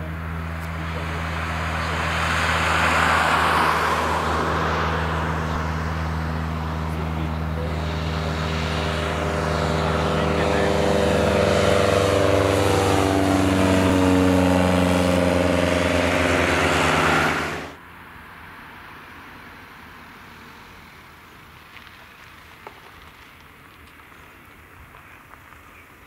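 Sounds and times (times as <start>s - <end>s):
propeller aircraft droning overhead: 0.0s - 18.2s.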